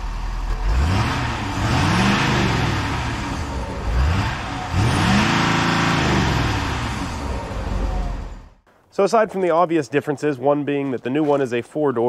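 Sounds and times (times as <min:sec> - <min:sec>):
diesel truck engine revving: 0:00.0 - 0:08.6.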